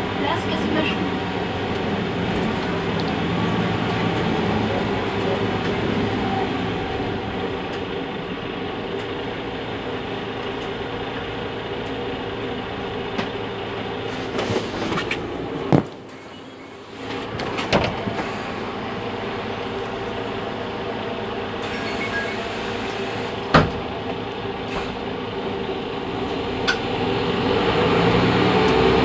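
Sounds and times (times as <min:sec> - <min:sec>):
bus engine idling: 0:00.0 - 0:29.0.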